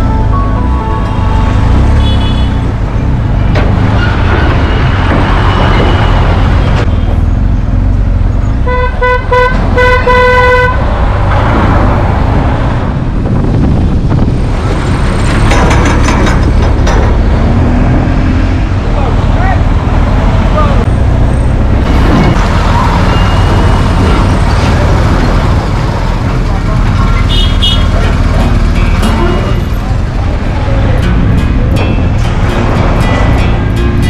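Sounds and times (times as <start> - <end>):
vehicle horn toots: 1.0 - 2.6, 8.6 - 10.8, 27.3 - 27.9.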